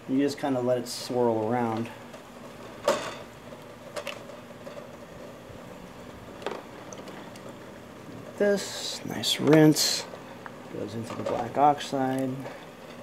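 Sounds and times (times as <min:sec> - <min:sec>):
faint steady hiss: 0:06.6 - 0:12.8.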